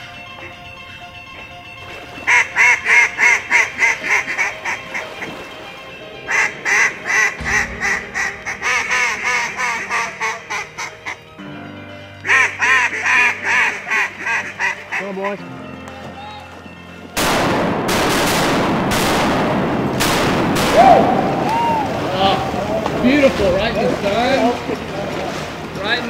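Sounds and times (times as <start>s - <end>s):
low sustained music notes: 0.0s - 18.0s, 18.6s - 26.0s
duck quacking rapidly: 2.3s - 5.1s, 6.3s - 11.2s, 12.2s - 15.4s.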